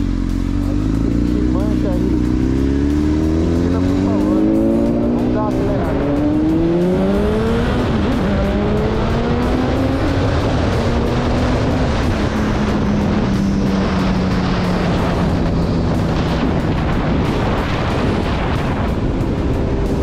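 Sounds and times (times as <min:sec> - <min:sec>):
motorcycle engine accelerating: 0:00.0 - 0:20.0
rushing wind noise: 0:00.0 - 0:20.0.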